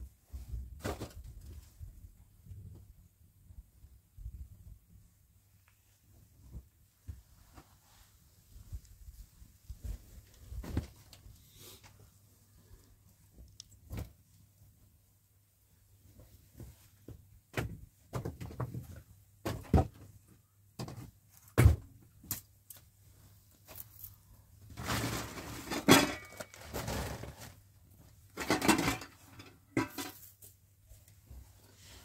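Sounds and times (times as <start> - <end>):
objects knocking and clattering: 20.8 - 21.9, 24.8 - 27.4, 28.3 - 30.4.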